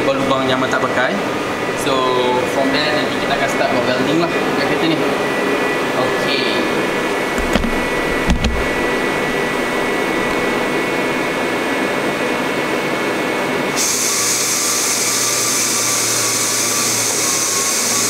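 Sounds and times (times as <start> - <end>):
dull thumps: 6.9 - 11.4.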